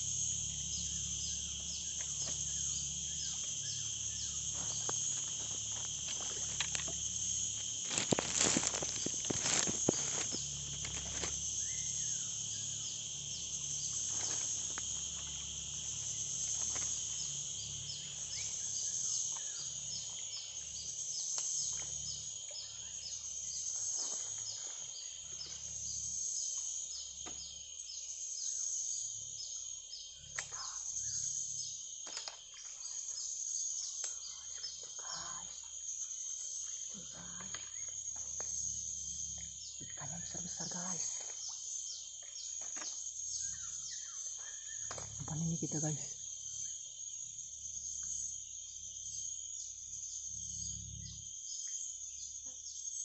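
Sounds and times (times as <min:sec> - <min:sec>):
insects chirping chorus: 0:00.0 - 0:53.0.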